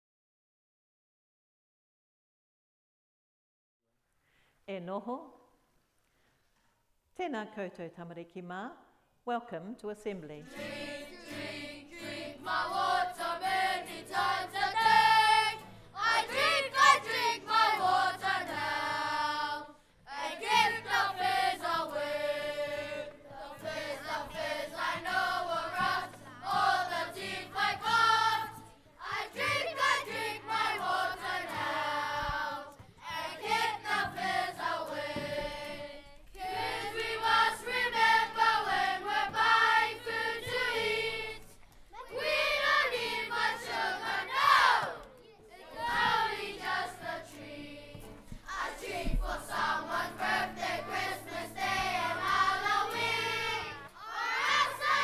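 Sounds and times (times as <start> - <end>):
woman and children singing: 10.3 - 45.0, 45.6 - 55.0.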